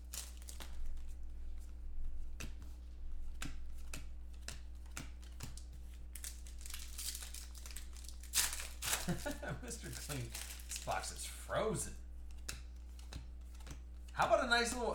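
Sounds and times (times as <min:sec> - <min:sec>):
foil wrappers crinkling and tearing: 0:00.0 - 0:01.2, 0:05.3 - 0:11.4.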